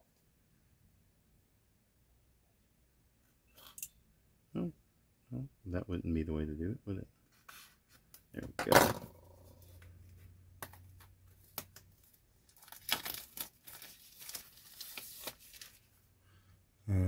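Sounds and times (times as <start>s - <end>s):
plastic wrap crinkling and tearing: 11.3s - 16.0s.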